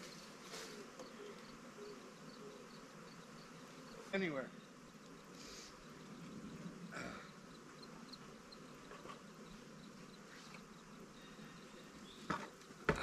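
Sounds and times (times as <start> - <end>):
bee swarm buzzing: 0.0 - 13.0.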